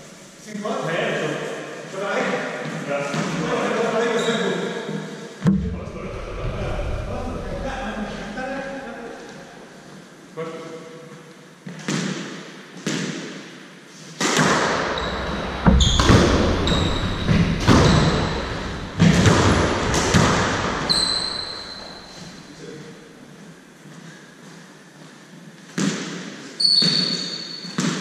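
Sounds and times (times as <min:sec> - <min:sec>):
squash ball hitting rackets and walls: 0:11.7 - 0:13.5, 0:14.2 - 0:22.5, 0:25.7 - 0:28.0
shoes squeaking on wooden floor: 0:14.9 - 0:22.5, 0:26.6 - 0:27.8.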